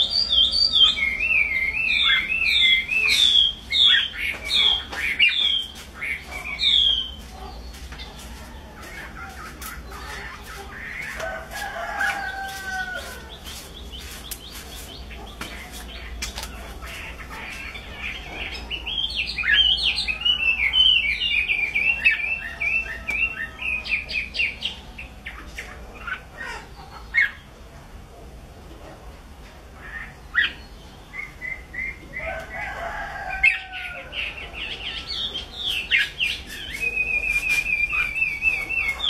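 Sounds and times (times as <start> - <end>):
bird singing: 0.0 - 27.5, 29.8 - 39.0.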